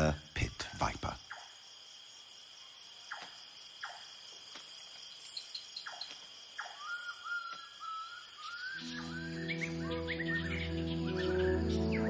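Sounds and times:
crickets trilling: 0.0 - 12.0
downward sweeping insect calls: 0.0 - 12.0
whistled tone: 7.8 - 10.6.

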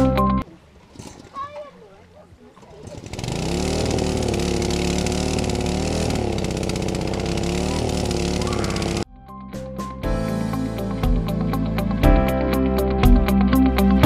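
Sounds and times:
motor running with wavering pitch: 2.8 - 9.0.

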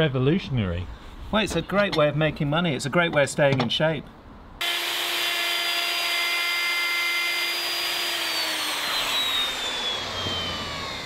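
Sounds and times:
electric router whining: 4.6 - 11.0.

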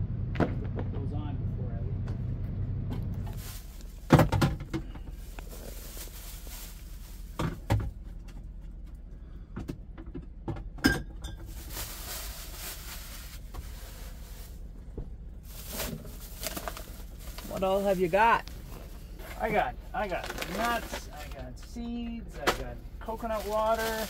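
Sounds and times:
low steady hum: 0.0 - 24.0
rustling: 3.1 - 9.0, 11.4 - 24.0
knocks and thumps in truck cab: 4.0 - 5.2, 7.4 - 8.5, 9.5 - 11.6.

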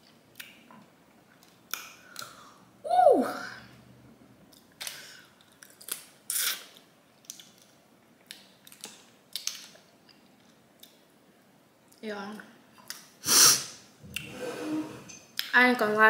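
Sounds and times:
sucking and chewing: 4.5 - 11.0.

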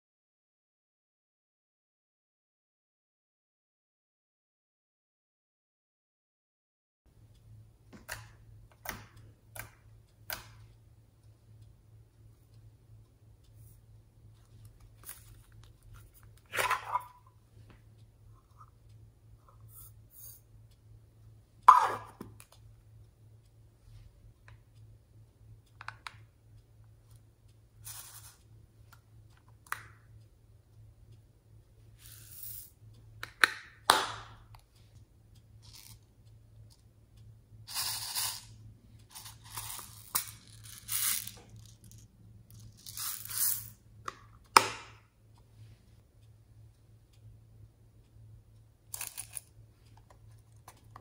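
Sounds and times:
faint low hum: 7.1 - 51.0
sequins rattling into glass dish: 39.1 - 43.8.

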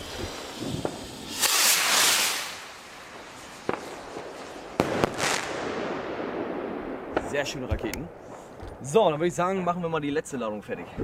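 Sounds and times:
firework rocket hiss: 0.0 - 6.3
firework bangs: 0.0 - 8.9.

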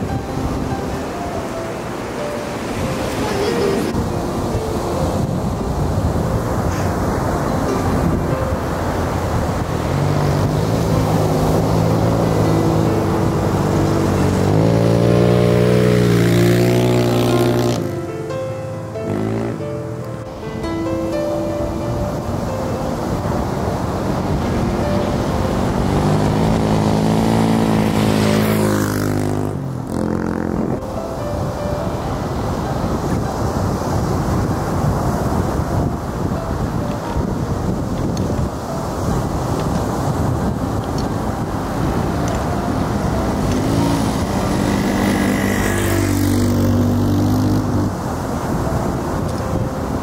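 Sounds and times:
wind on microphone: 0.0 - 18.2, 18.8 - 50.0
vehicle driving past: 7.9 - 18.1, 18.7 - 20.0, 23.1 - 31.0, 41.2 - 48.2
dirt bike engine: 8.1 - 18.1, 24.0 - 30.8, 42.1 - 48.0.

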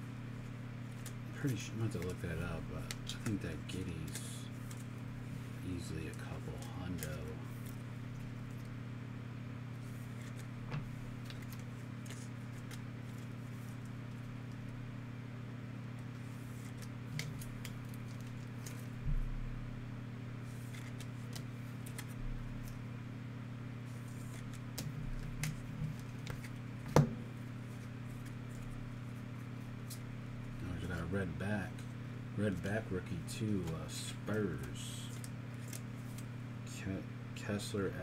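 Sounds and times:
steady low hum: 0.0 - 38.0
cards clicking and rustling: 0.8 - 5.0, 5.7 - 8.8, 9.9 - 14.8, 15.9 - 19.0, 20.5 - 22.8, 23.9 - 27.1, 27.7 - 30.1, 33.4 - 36.3.

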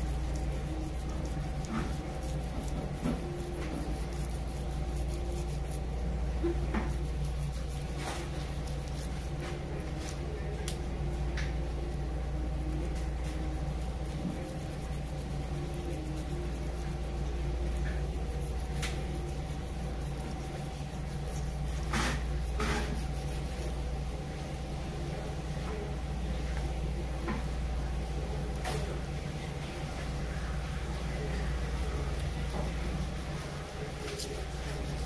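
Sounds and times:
knife scraping fish scales: 0.0 - 10.2, 13.0 - 23.9
low machine hum: 0.0 - 35.0.

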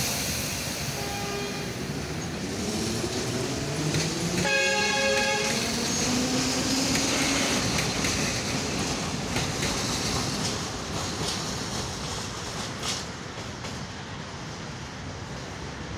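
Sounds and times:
train horn blast: 1.0 - 1.8, 4.4 - 5.7.

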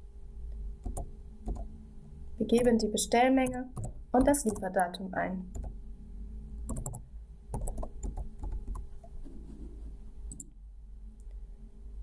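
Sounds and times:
faint low hum: 0.0 - 12.0
keyboard typing: 0.8 - 1.7, 3.4 - 4.7, 5.5 - 5.7, 6.7 - 8.8.

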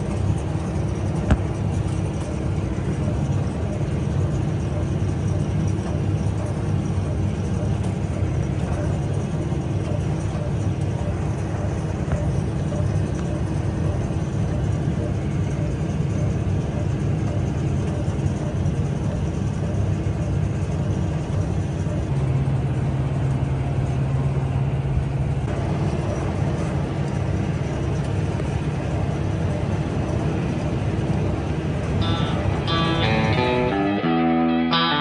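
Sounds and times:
tractor and baler running: 0.0 - 35.0
steady low drone: 22.0 - 35.0.

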